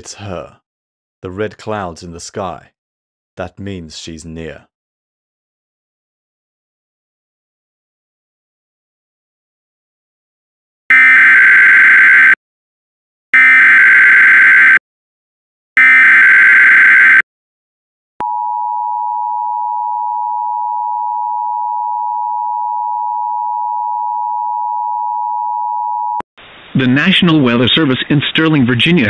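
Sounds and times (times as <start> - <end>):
screeching data warble: 15.8 - 17.2.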